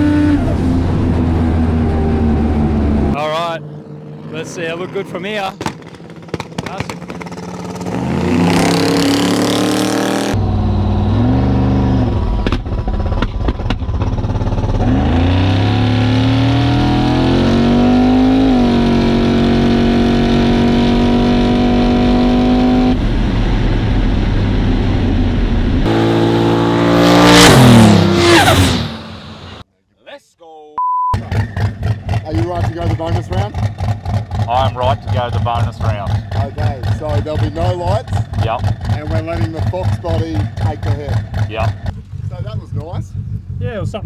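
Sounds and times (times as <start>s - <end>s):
cars passing loudly: 0.0s - 12.7s, 25.8s - 29.6s
drag car engines at full throttle: 0.0s - 29.6s, 31.2s - 44.0s.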